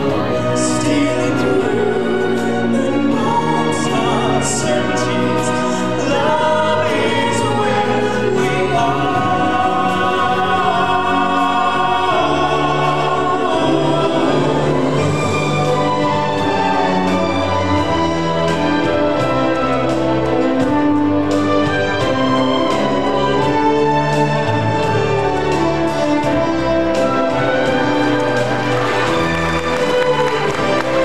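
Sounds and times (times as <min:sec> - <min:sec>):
instrumental backing with bass: 0:00.0 - 0:31.0
choir singing held notes: 0:01.5 - 0:17.1.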